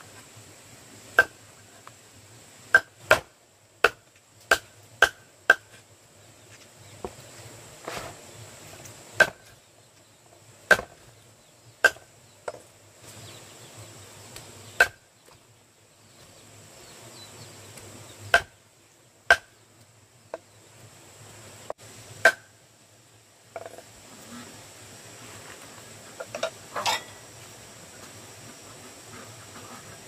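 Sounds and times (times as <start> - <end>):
sharp chopping strikes: 2.7 - 5.8, 9.2 - 9.6, 10.7 - 11.0, 11.8 - 12.1, 14.8 - 15.0, 18.3 - 18.5, 19.3 - 19.5, 22.2 - 22.5.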